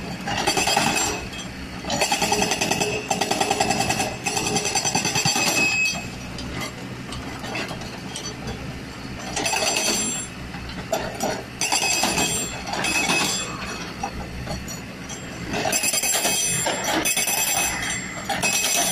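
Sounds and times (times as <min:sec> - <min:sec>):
excavator engine running: 0:00.0 - 0:18.9
hydraulic rock breaker hammering: 0:00.2 - 0:06.2, 0:09.2 - 0:10.3, 0:10.9 - 0:18.9.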